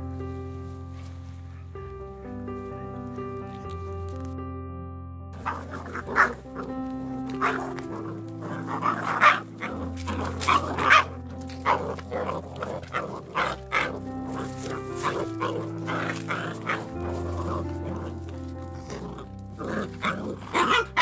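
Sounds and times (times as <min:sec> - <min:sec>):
background music: 0:00.0 - 0:21.0
puppies yapping and barking: 0:05.4 - 0:21.0.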